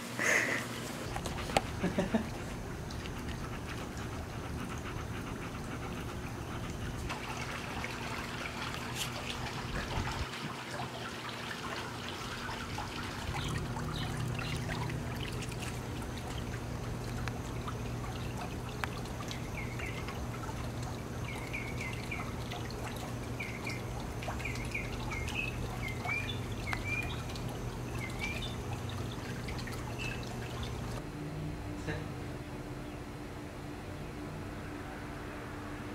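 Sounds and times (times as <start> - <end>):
water trickling: 1.0 - 31.0
low hum: 11.7 - 35.9.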